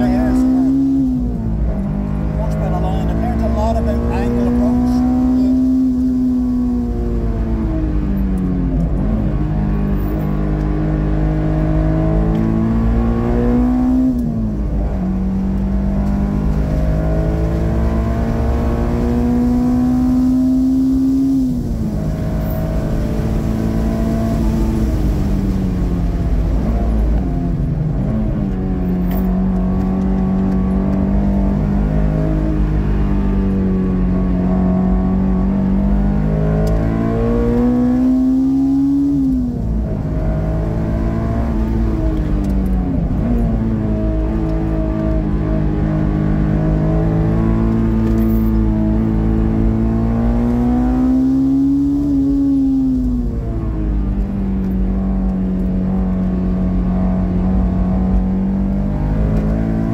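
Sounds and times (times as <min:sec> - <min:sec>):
car engine revving: 0:00.0 - 0:59.9
road and wind rumble: 0:00.0 - 0:59.9.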